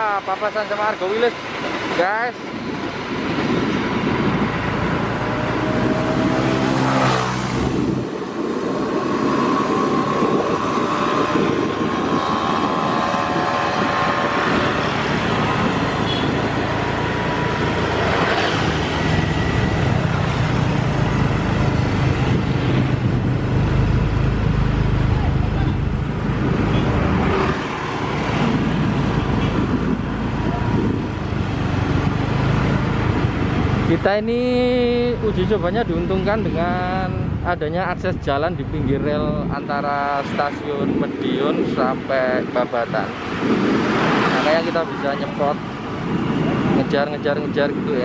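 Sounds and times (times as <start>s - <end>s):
vehicles running: 0.0s - 48.0s
deep engine hum: 2.6s - 39.6s.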